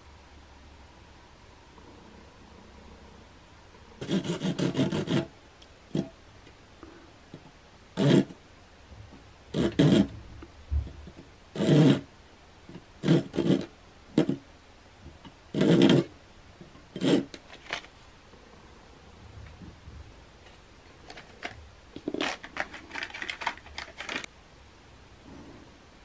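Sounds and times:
saw cutting tube: 4.0 - 5.3, 8.0 - 8.4, 9.5 - 10.1, 11.6 - 12.1, 13.0 - 14.4, 15.5 - 16.1, 16.9 - 17.4.

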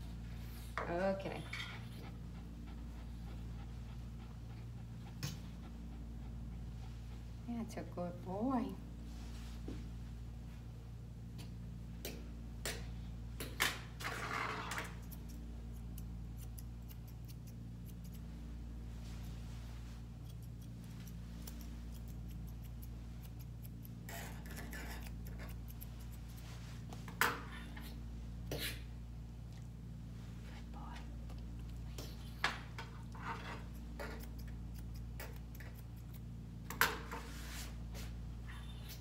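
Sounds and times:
steady low hum: 0.0 - 39.0
grooming tool raking dog coat: 18.9 - 27.0.

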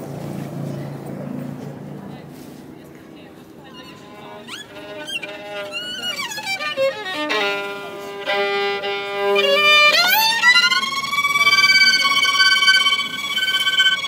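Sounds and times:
solo violin bowed: 3.6 - 14.0.

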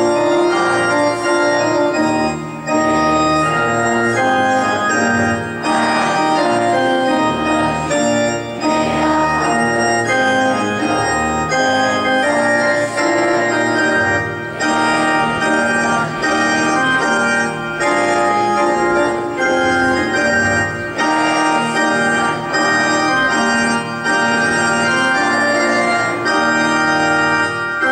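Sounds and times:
organ playing held chords: 0.0 - 27.9.

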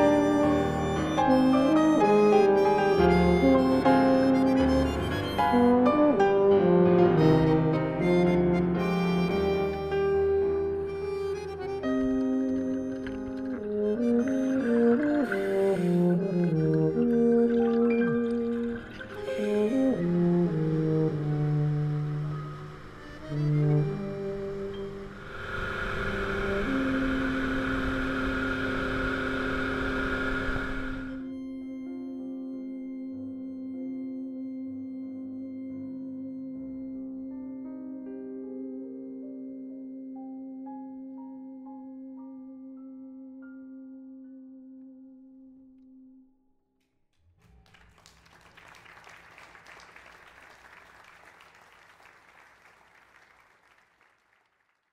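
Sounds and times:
held musical note: 0.0 - 36.3
motorboat engine running: 11.3 - 31.3
applause: 47.4 - 54.9.

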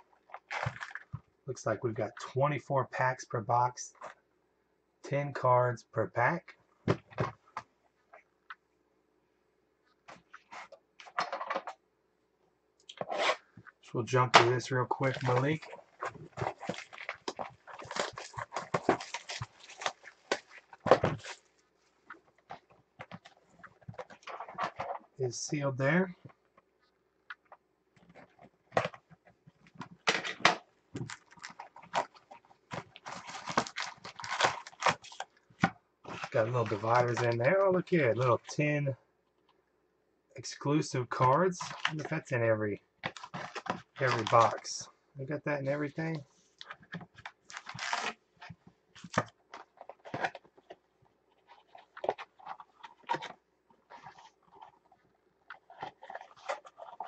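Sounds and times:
cardboard and foil wrappers crinkling: 0.2 - 1.1, 14.4 - 25.0, 28.1 - 38.5, 43.0 - 44.8, 45.7 - 57.0.

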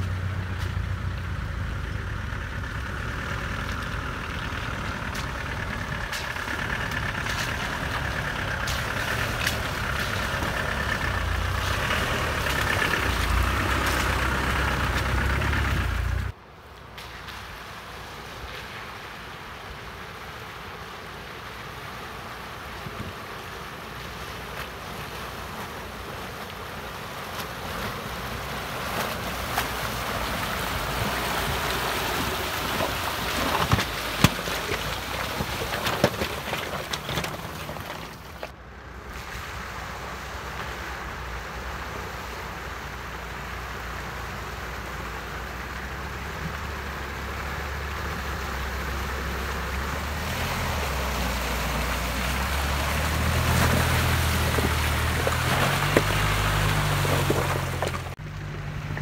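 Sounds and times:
low engine note: 0.0 - 16.4
water splashing around wheels: 0.0 - 59.0
sharp splash: 49.9 - 58.2.

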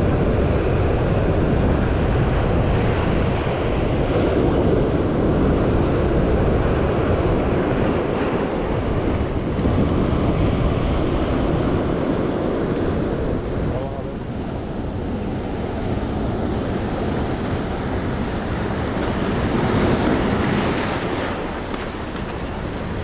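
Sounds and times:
wind buffeting microphone: 0.0 - 23.0
surf breaking over boulders: 15.9 - 23.0.

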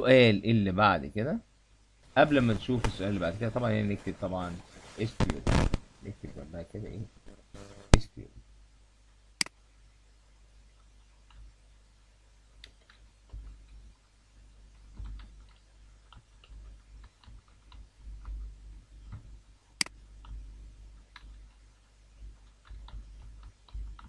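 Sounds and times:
faint low hum: 0.0 - 24.0
keyboard typing: 14.8 - 20.4, 21.0 - 24.0.

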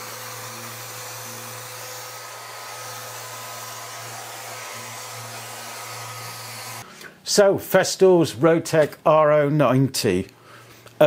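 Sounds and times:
orbital sander whirring: 0.0 - 6.8.

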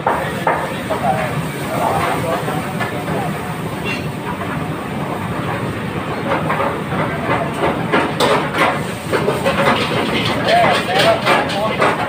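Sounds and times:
metal utensils and pans clattering: 7.9 - 12.0.

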